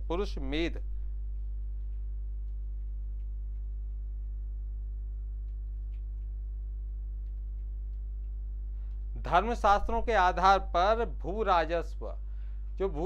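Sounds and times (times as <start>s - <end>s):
low electrical hum: 0.0s - 13.0s
faint ticks: 0.8s - 9.6s, 12.0s - 13.0s.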